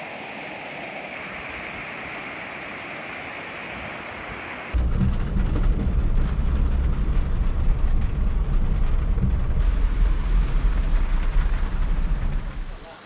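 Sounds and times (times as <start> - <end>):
car driving rumble from inside: 4.8 - 12.6
rushing floodwater: 9.6 - 13.0.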